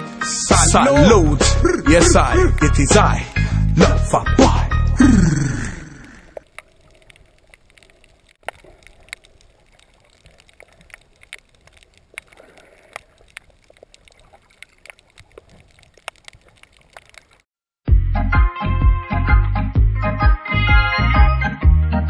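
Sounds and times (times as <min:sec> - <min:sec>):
underwater water wash: 0:04.8 - 0:17.4
underwater clicks and crackles: 0:05.8 - 0:17.5.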